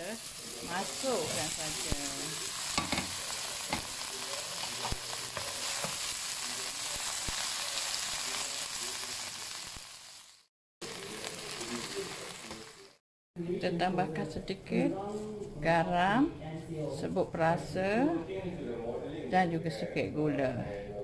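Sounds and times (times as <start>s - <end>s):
vegetables sizzling in a wok: 0.0s - 13.0s.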